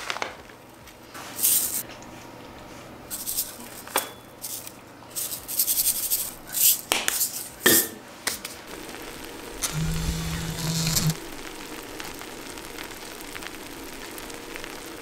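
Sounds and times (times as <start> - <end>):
utensils scraping and rustling: 3.1 - 7.6.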